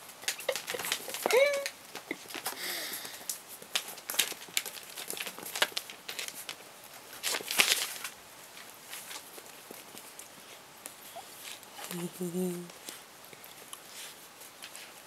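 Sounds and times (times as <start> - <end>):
paper rustling: 0.0 - 10.6, 13.6 - 15.0
puppy whining: 0.3 - 2.2, 11.0 - 12.2.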